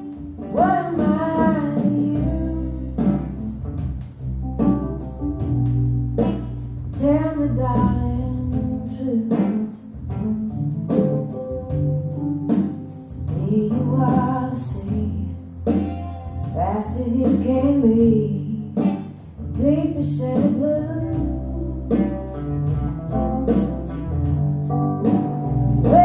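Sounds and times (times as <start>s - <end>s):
person singing: 0.0s - 3.4s, 13.1s - 15.4s, 16.0s - 22.4s, 25.8s - 26.0s
bass: 0.0s - 26.0s
guitar: 0.0s - 26.0s.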